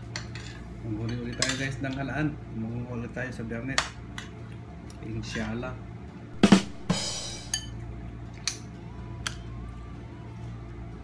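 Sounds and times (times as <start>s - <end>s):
spoons clinking on ceramic bowls: 0.2s - 1.8s, 7.5s - 7.8s.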